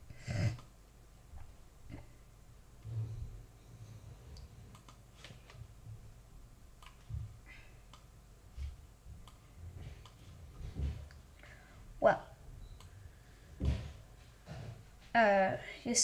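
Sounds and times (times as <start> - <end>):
computer clicks: 4.7 - 5.0, 6.8 - 7.0.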